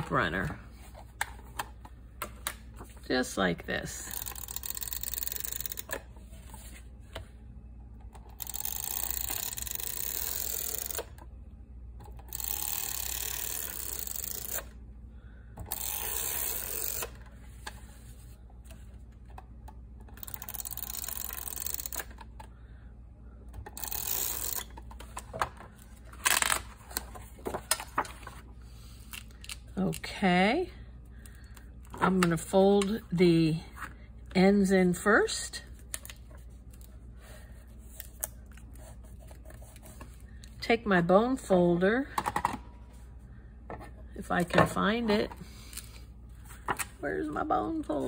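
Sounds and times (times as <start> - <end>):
tape runner whirring: 15.6 - 17.8.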